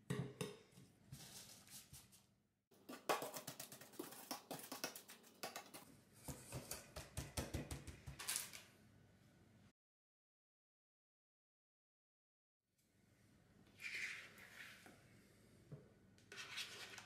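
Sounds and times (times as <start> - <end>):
fingers patting crumbs in metal tin: 2.8 - 5.8.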